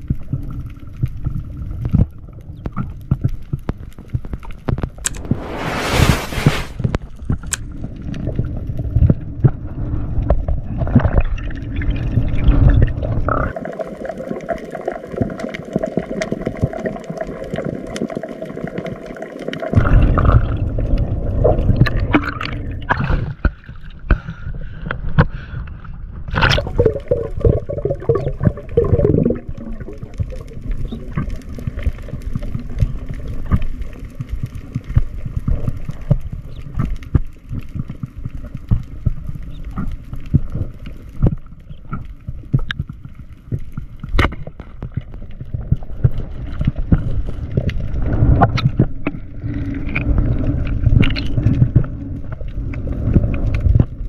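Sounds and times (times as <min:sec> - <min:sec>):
small knocks and pops: 0:01.2 - 0:05.2.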